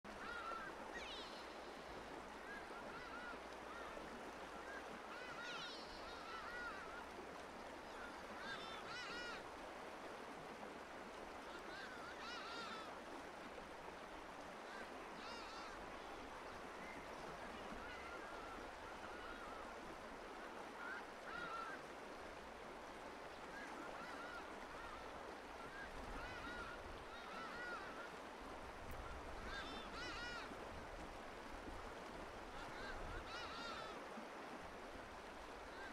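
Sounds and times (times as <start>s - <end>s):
steady outdoor hiss: 0.1s - 35.9s.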